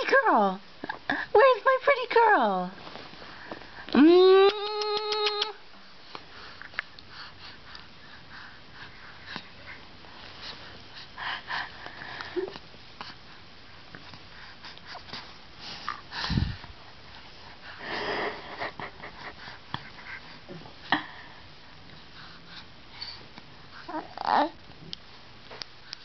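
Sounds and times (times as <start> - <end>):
sniffs and wheezy breathing: 6.2 - 13.5, 14.2 - 23.3.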